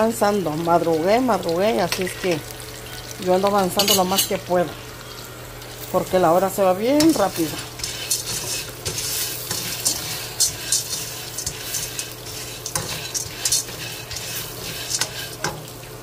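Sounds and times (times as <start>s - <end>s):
pasta and onion sizzling in pan: 0.0s - 16.0s
spatula scraping metal pan: 7.0s - 15.7s.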